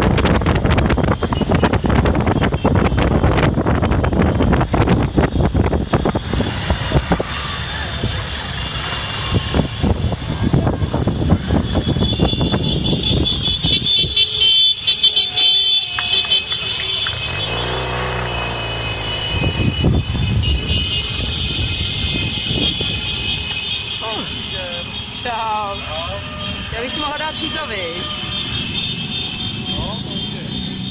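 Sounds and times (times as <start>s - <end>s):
motor scooters revving past: 16.5s - 21.2s.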